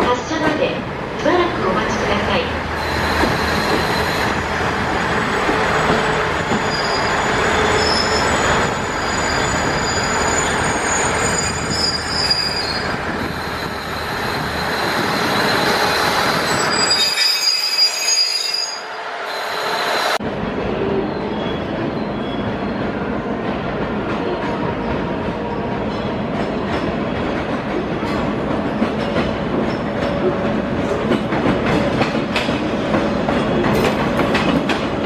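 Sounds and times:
train engines and wheels rumbling: 0:00.0 - 0:35.0
high-pitched wheel squeals: 0:06.5 - 0:20.2.

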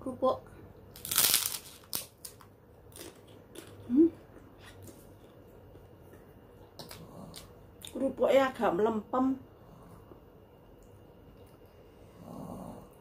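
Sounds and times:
chewing cracker crunches: 0:00.9 - 0:04.0.

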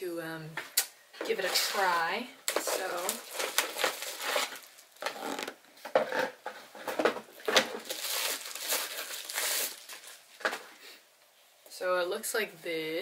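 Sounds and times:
plastic packaging crinkling: 0:01.3 - 0:10.8.

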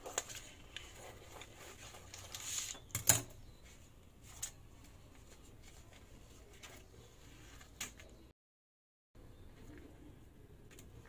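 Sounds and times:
soft paper rustling: 0:00.0 - 0:02.9, 0:03.5 - 0:08.3.

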